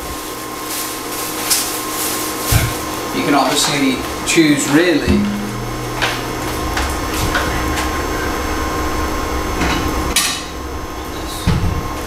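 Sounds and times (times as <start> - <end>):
steady low hum: 4.2 - 9.5.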